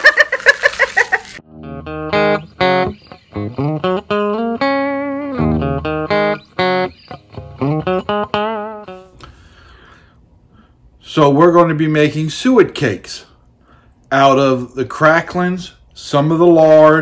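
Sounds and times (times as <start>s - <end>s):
plucked guitar melody: 1.4s - 9.5s.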